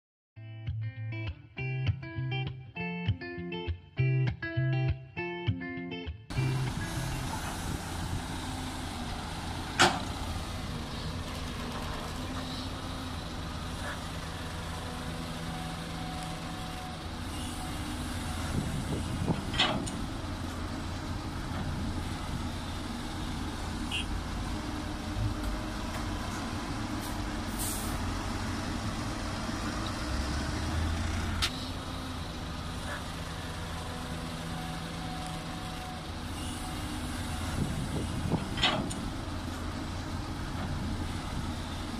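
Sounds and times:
excavator diesel engine under load: 0:06.3 - 0:41.9
short hiss: 0:27.0 - 0:28.0.

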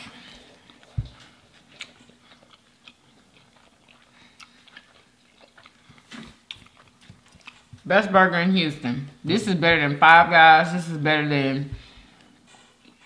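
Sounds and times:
person chewing: 0:00.0 - 0:07.9, 0:11.8 - 0:13.0.

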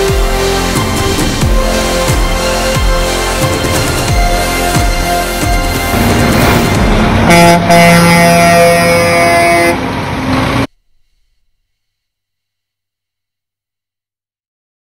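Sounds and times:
truck air horns honking: 0:00.0 - 0:11.4
vehicle noise: 0:00.0 - 0:11.6.

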